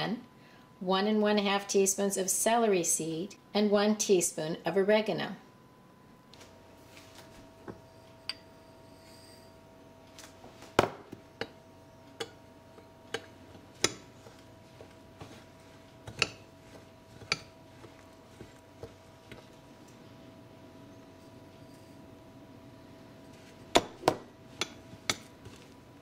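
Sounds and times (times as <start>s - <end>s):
faint steady hum: 0.0s - 26.0s
glass bowls clinking: 7.8s - 9.6s.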